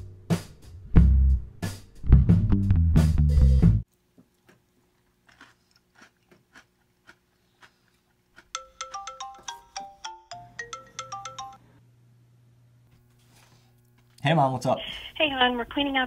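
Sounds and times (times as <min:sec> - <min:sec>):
crunchy chewing of cereal: 0:03.9 - 0:08.6
phone ringtone melody: 0:08.6 - 0:11.8.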